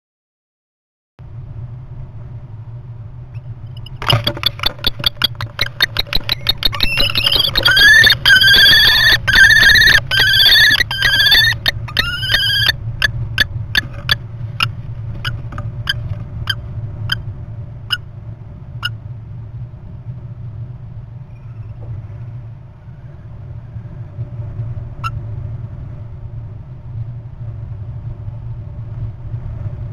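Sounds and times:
low steady hum: 0:01.2 - 0:29.9
short sharp tick-like calls: 0:03.7 - 0:16.0
kestrels whining calls: 0:03.7 - 0:17.2.

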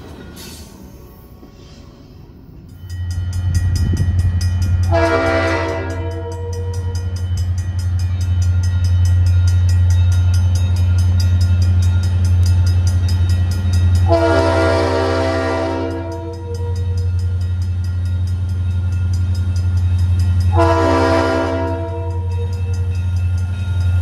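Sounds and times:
train rumble: 0:00.0 - 0:24.0
crossing bell ringing: 0:02.4 - 0:24.0
train air horn: 0:04.8 - 0:07.2, 0:14.0 - 0:17.1, 0:20.5 - 0:22.8.

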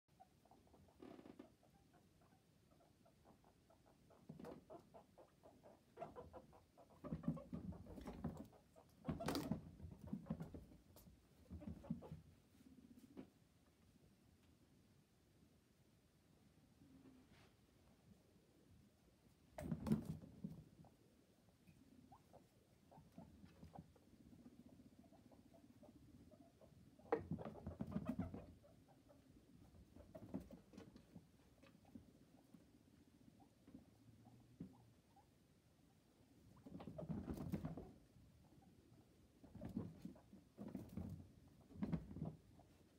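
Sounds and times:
guinea pig squeaking: 0:00.1 - 0:12.2, 0:21.6 - 0:35.4
guinea pig feet tapping: 0:04.0 - 0:12.2, 0:22.3 - 0:32.6, 0:36.5 - 0:38.0
guinea pig feet pattering on cage floor: 0:27.1 - 0:32.6.

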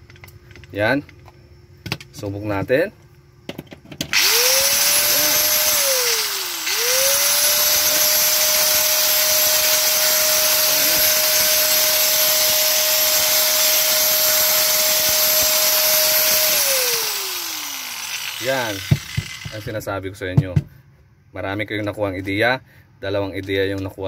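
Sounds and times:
grinder motor whine: 0:04.1 - 0:19.9.

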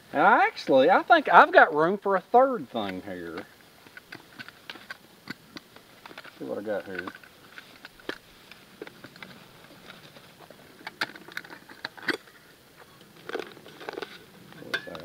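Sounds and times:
metal pot and lid clinking: 0:14.7 - 0:15.0.

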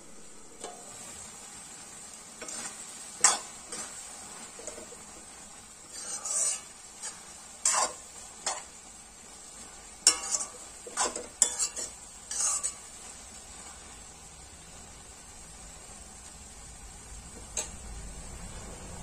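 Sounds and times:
steady sizzle: 0:00.0 - 0:19.0
metal spoon scraping a pan: 0:00.6 - 0:13.9, 0:17.4 - 0:17.8.

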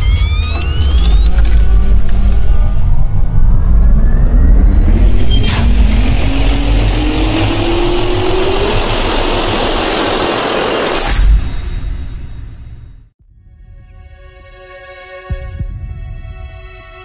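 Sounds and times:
low boom: 0:00.0 - 0:10.5
jet engine spooling up: 0:00.0 - 0:12.5.

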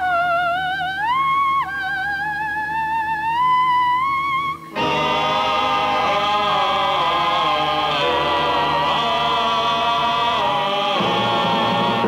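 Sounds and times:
choir singing soundtrack music: 0:04.7 - 0:12.0.

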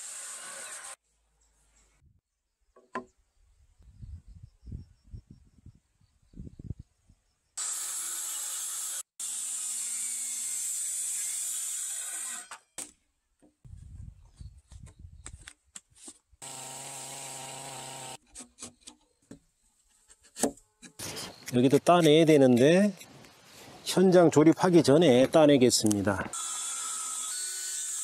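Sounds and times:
circular saw cutting wood: 0:00.0 - 0:01.0, 0:07.6 - 0:12.6, 0:16.4 - 0:18.2, 0:26.3 - 0:28.0
power tool running: 0:16.4 - 0:18.2.

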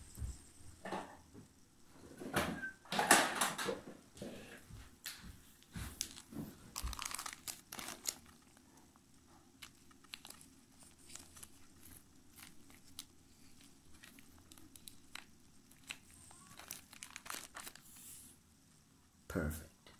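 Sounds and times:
plastic bag crinkling: 0:06.0 - 0:18.2.

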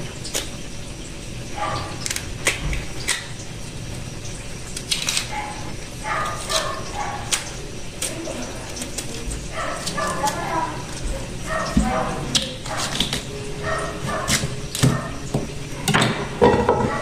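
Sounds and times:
knife scraping root skin: 0:04.8 - 0:05.4
animal crying: 0:09.4 - 0:17.0.

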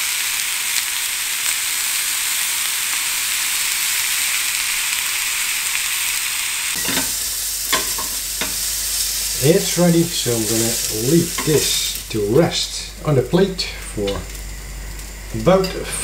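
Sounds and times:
steak sizzling in grill pan: 0:00.0 - 0:16.0
metal tongs knocking pan: 0:06.8 - 0:07.1, 0:07.7 - 0:08.6.

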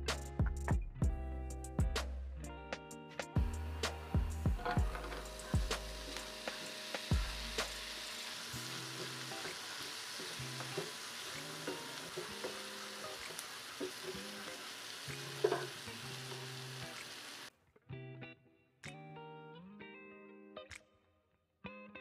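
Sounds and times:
soft background music: 0:00.5 - 0:16.4
meat sizzling in a pan: 0:04.6 - 0:17.5.

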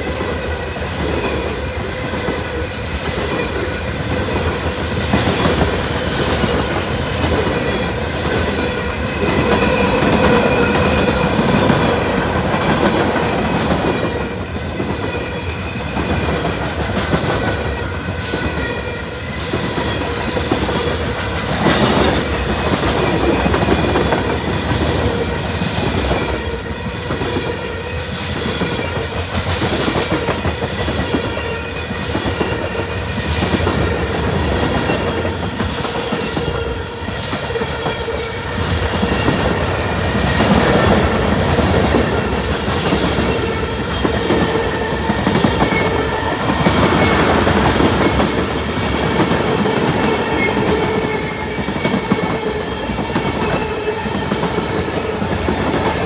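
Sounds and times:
freight train rumble: 0:00.0 - 0:56.0.

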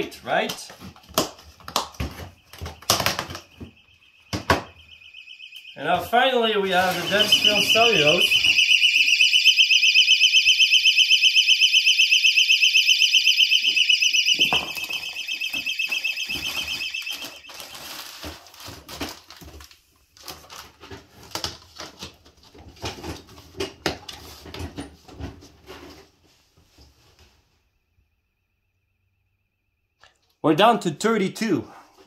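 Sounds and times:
personal alarm shrieking: 0:01.8 - 0:18.4
plastic bag rustling: 0:06.7 - 0:08.6, 0:15.9 - 0:22.2.

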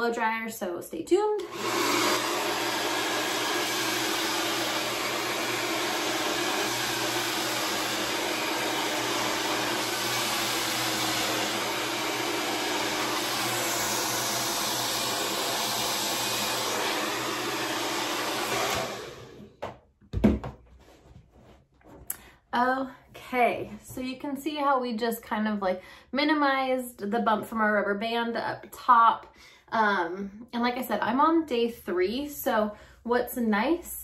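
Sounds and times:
hair dryer blowing: 0:01.4 - 0:19.6.

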